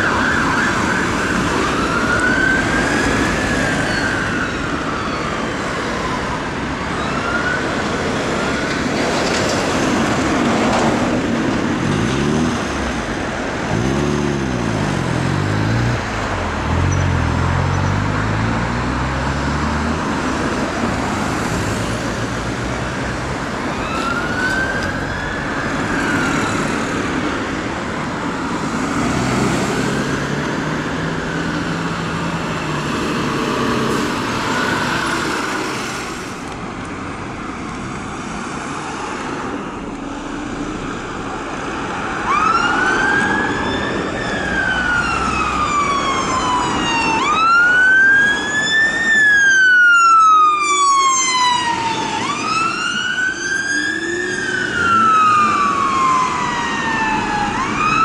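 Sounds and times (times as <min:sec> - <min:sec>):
siren wailing: 0:00.0 - 0:08.8, 0:23.6 - 0:27.0, 0:41.8 - 0:58.0
town traffic: 0:00.0 - 0:58.0.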